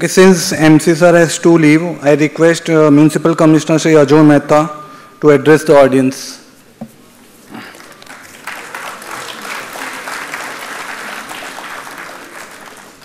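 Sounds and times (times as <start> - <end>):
audience applauding: 7.5 - 13.0.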